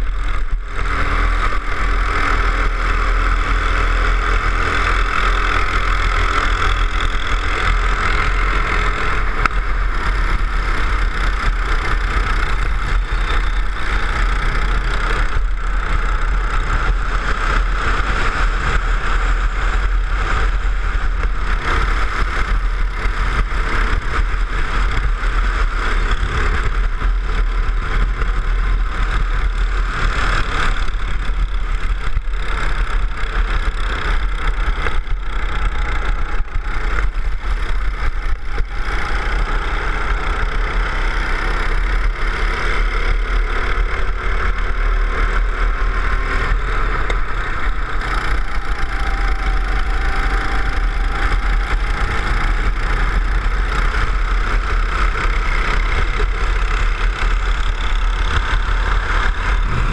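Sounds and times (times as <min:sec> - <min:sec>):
go-kart engine revving: 0:00.0 - 0:59.9
wind rumble on microphone: 0:44.1 - 0:59.9.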